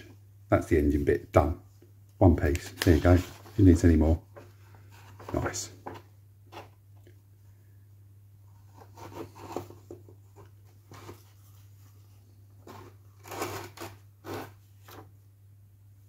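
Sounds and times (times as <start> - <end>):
paper booklet rustling: 2.4 - 6.7.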